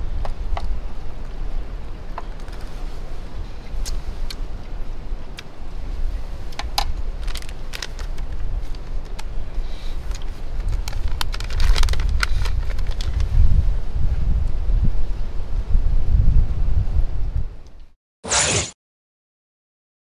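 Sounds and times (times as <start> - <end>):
camp gear rattling clatter: 10.0 - 13.2.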